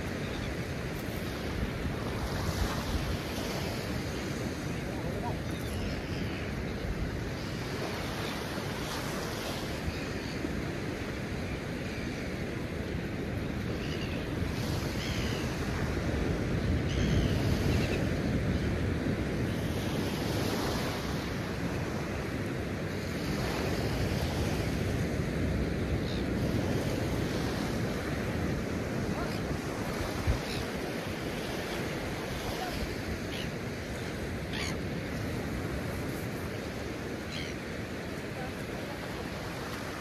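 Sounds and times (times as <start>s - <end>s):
ocean surf breaking: 0.0s - 10.0s, 19.4s - 40.0s.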